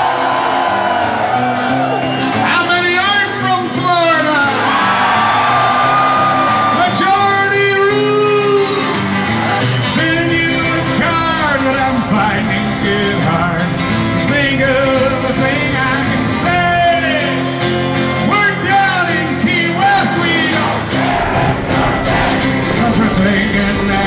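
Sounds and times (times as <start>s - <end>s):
twelve-string acoustic guitar: 2.2s - 24.0s
man singing: 6.7s - 8.9s, 9.8s - 17.5s, 18.2s - 21.0s, 21.7s - 24.0s.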